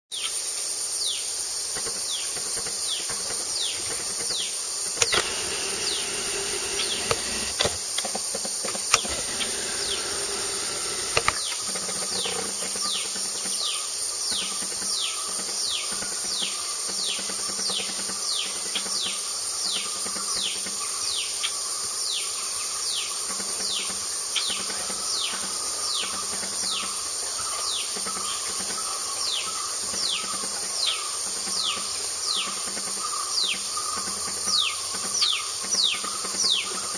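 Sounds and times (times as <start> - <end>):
insect drone: 0.2 - 36.9
sharp clicks: 5.0 - 11.8.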